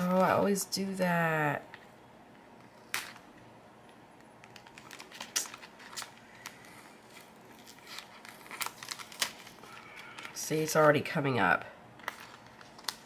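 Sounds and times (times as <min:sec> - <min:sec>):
paper and plastic crinkling: 0:04.4 - 0:11.1, 0:12.0 - 0:13.0.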